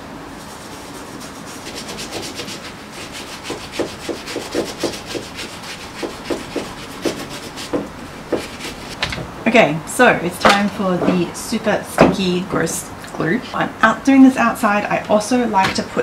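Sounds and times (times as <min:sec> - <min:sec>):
cloth wiping leather: 0:00.4 - 0:09.0.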